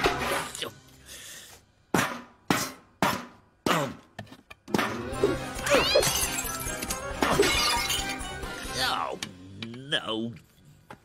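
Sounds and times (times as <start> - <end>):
cartoon background music: 0.0 - 1.4, 4.7 - 9.5.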